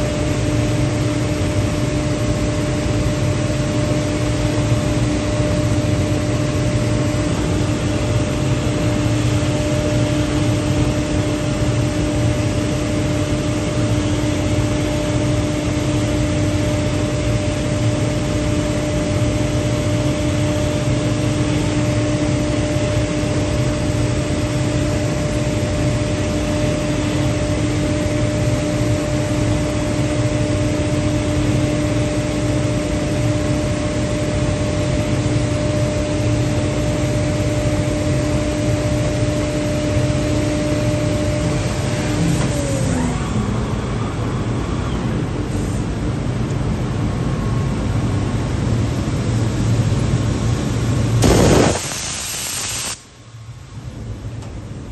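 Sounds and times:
machine hum: 0:00.0 - 0:54.9
spindle whine: 0:51.2 - 0:53.0.

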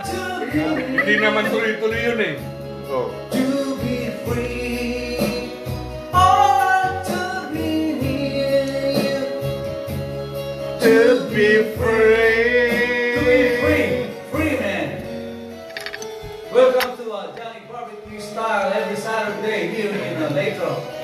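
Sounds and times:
person singing: 0:00.0 - 0:01.9, 0:03.3 - 0:09.4, 0:10.8 - 0:14.2.

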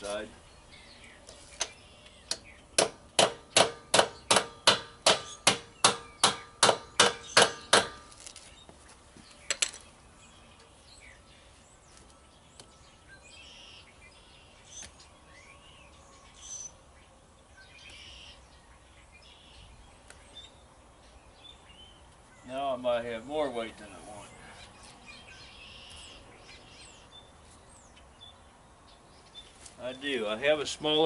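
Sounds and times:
hammer striking metal wheel rim: 0:02.8 - 0:08.1.

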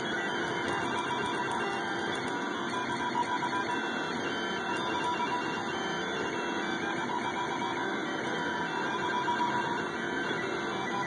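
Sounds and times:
stepper motors whining: 0:00.0 - 0:11.0.

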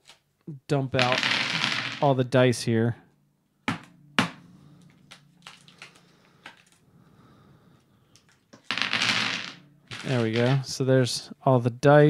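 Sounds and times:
dice clacking on tabletop: 0:01.0 - 0:02.0, 0:08.2 - 0:10.7.

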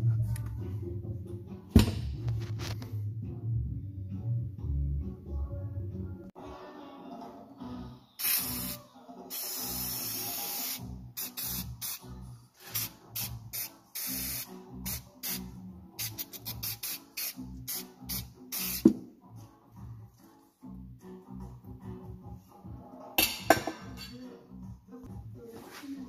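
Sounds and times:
aerosol spray can hissing: 0:08.2 - 0:12.0, 0:12.6 - 0:15.4, 0:16.0 - 0:19.0.

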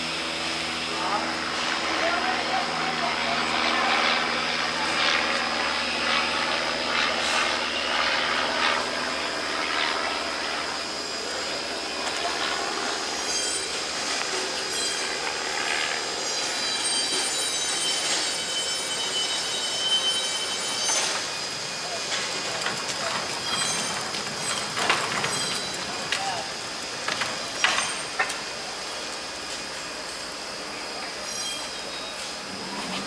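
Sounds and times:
wheels squeaking: 0:22.4 - 0:26.2.

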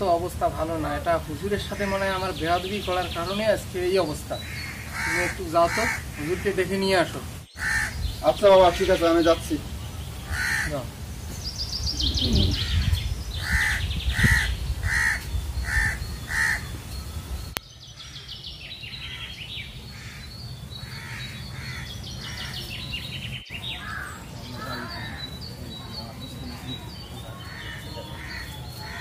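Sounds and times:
small birds chirping: 0:00.0 - 0:29.0
crows cawing: 0:04.4 - 0:08.1, 0:10.3 - 0:10.9, 0:12.5 - 0:16.7, 0:19.0 - 0:22.7, 0:23.7 - 0:25.2, 0:27.3 - 0:29.0.

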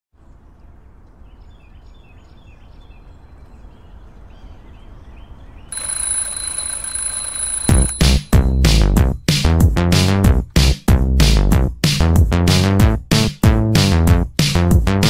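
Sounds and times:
music: 0:07.7 - 0:15.0.

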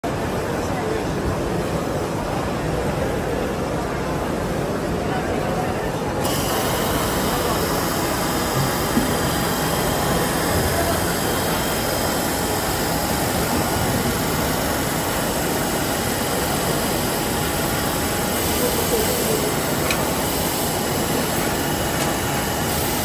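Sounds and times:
steady machine noise: 0:06.0 - 0:23.0.

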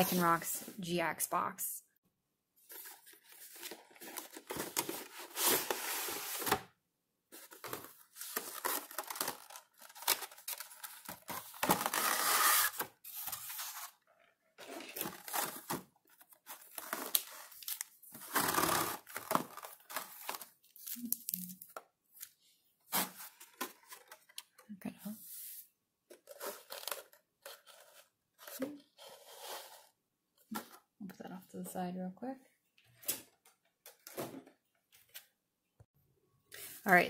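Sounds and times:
plastic and cardboard crinkling: 0:02.6 - 0:06.7, 0:07.3 - 0:21.8.

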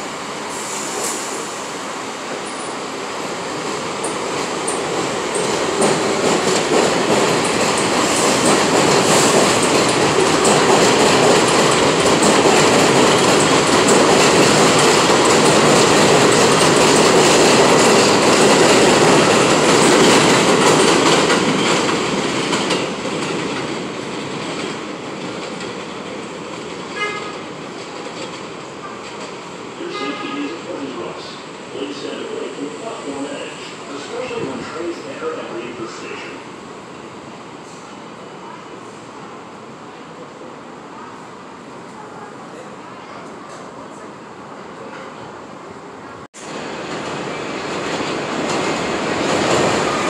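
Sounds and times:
train wheels clattering over rails: 0:03.6 - 0:29.6, 0:46.4 - 0:50.0.

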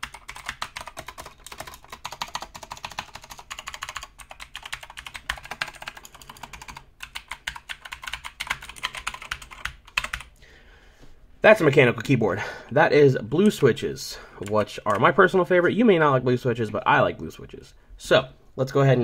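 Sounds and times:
fast typing on mechanical keyboard: 0:00.0 - 0:10.3.

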